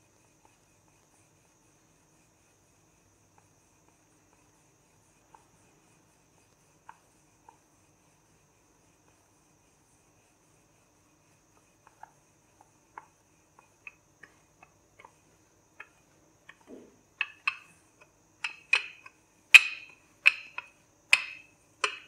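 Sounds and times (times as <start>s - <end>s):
rolling pin clicking on counter: 12.9s - 22.0s.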